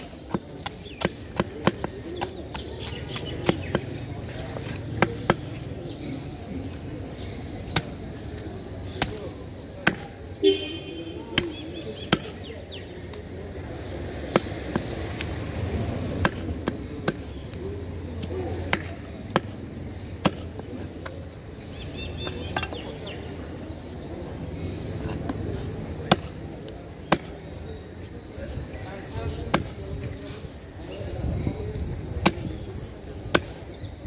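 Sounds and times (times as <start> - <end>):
knife chopping fish on wood: 0.2 - 3.9, 26.0 - 26.4.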